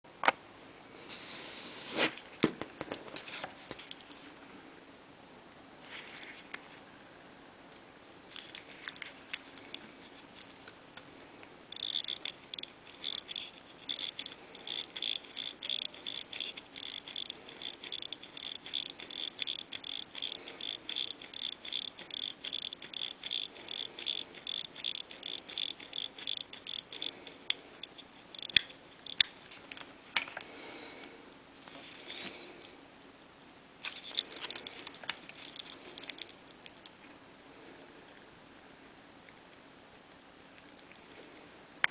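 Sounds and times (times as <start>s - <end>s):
alarm watch ringing: 11.7s - 29.3s, 35.3s - 36.4s
watch clicks: 11.7s - 29.4s, 33.9s - 36.4s.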